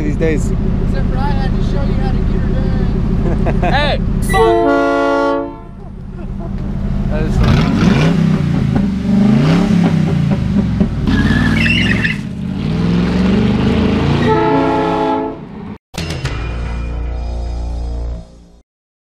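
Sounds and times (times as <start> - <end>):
car horn blast: 4.2 - 5.8, 14.2 - 15.5
car engine revving: 5.6 - 15.8.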